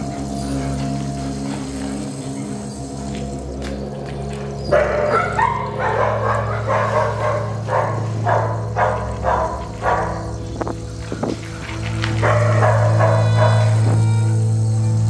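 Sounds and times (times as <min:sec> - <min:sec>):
steady low hum: 0:00.0 - 0:15.0
dog barking: 0:04.7 - 0:10.4, 0:12.1 - 0:13.9.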